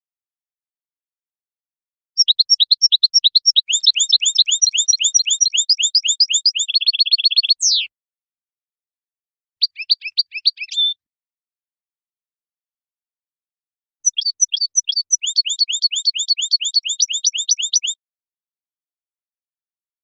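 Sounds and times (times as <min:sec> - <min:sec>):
bird twittering song: 0:02.2 - 0:07.9, 0:09.6 - 0:11.0, 0:14.0 - 0:18.0.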